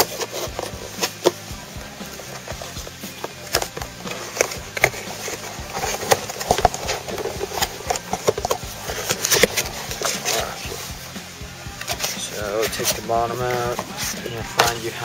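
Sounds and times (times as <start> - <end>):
cardboard box tapping and scraping: 0.0 - 11.0.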